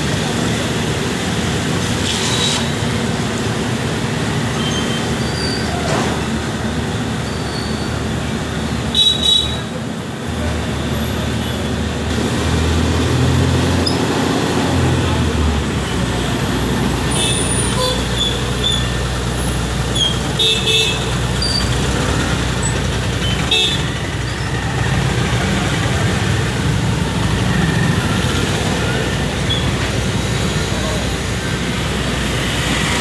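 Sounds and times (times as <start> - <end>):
motorbike engines passing: 10.4 - 33.0.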